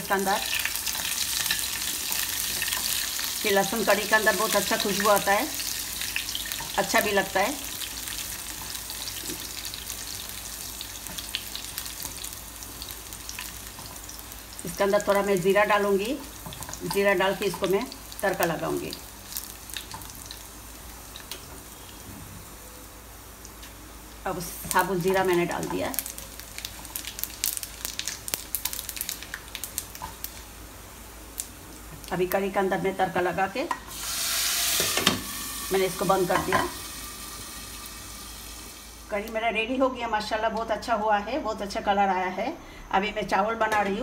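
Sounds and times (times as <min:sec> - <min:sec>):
spices sizzling in hot oil: 0:00.0 - 0:41.0
small crackles: 0:24.5 - 0:30.5.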